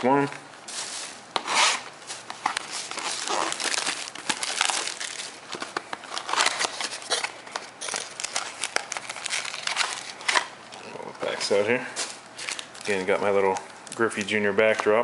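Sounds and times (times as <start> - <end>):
packaging crinkling and tearing: 2.0 - 10.9, 12.0 - 14.3.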